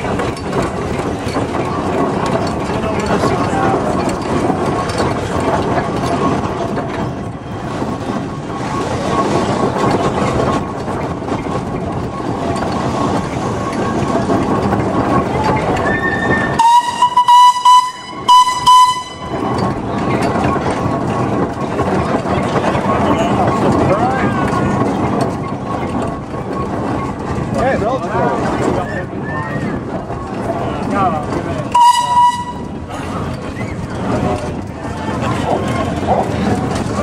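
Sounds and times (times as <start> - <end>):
steam vehicle running and hissing: 0.0 - 37.0
steam whistle blasts: 16.0 - 19.3, 31.8 - 32.7.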